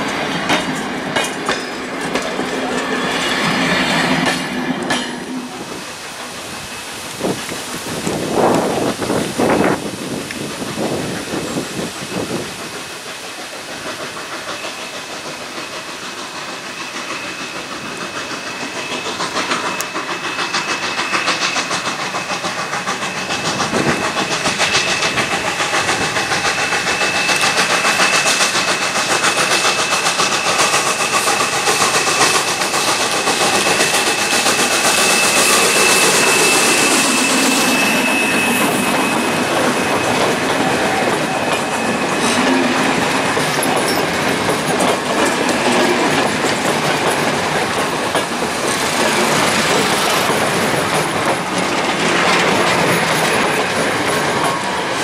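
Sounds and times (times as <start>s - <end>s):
wheels clattering over rail joints: 0.0s - 13.1s, 20.7s - 55.0s
steam locomotive passing: 0.0s - 55.0s
steady high-pitched tone: 33.2s - 44.1s.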